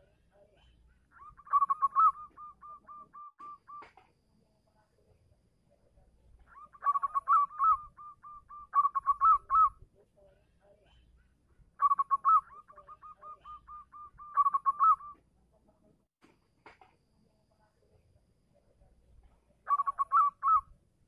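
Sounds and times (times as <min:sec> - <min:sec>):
dove cooing: 0:01.2 - 0:03.9, 0:06.5 - 0:09.8, 0:11.8 - 0:15.2, 0:19.7 - 0:20.7.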